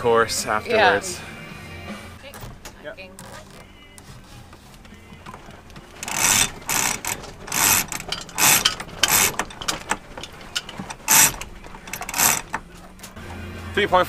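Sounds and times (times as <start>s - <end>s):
winch ratcheting: 2.2s - 13.2s.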